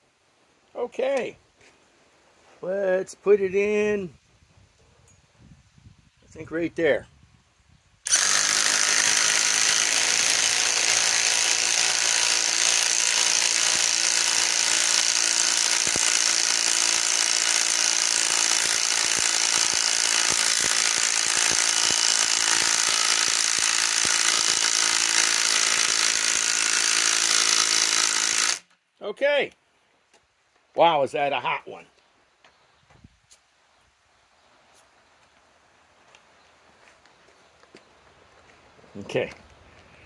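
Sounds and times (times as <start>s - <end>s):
impact wrench hammering: 8.1s - 28.6s.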